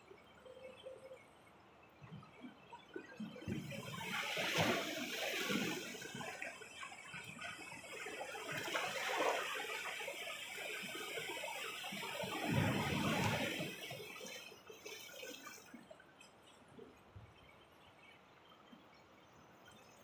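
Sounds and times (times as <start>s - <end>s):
waves splashing against rocks: 12.2s - 14.0s.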